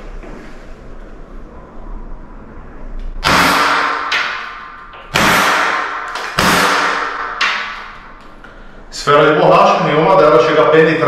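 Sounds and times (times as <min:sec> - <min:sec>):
air pistol shots echoing: 0:03.2 - 0:08.0.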